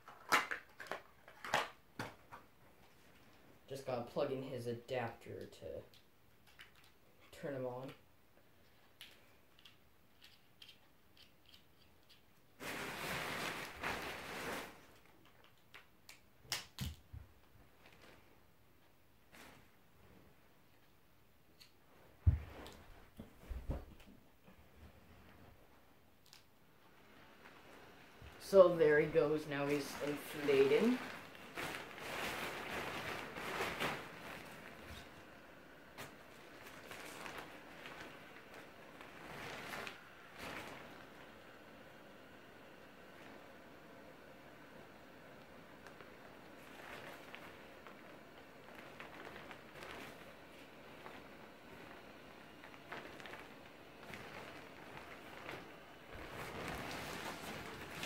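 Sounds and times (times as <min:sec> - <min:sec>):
nylon fabric rustling: 0:12.6 - 0:15.0, 0:27.2 - 0:35.3, 0:35.9 - 0:41.3, 0:45.8 - 0:58.0.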